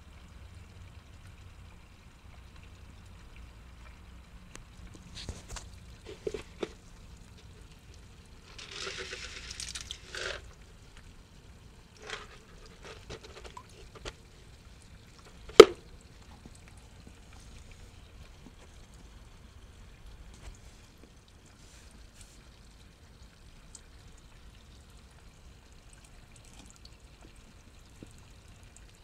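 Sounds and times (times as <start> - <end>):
water splashing: 8.3 - 18.6.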